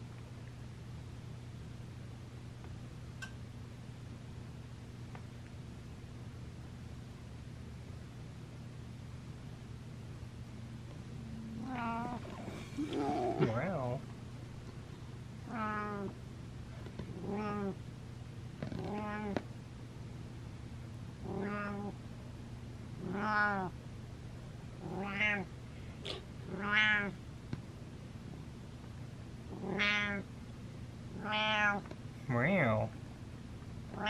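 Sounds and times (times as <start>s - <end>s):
cat meowing: 11.6s - 13.5s, 23.1s - 23.7s, 29.6s - 30.2s, 31.2s - 31.8s.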